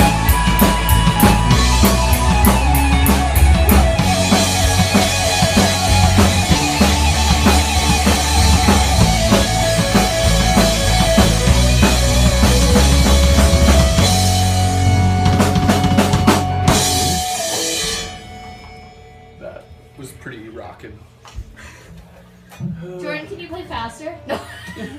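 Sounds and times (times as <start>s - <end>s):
band playing live: 0.0s - 19.5s
cymbal crashes: 16.0s - 20.4s.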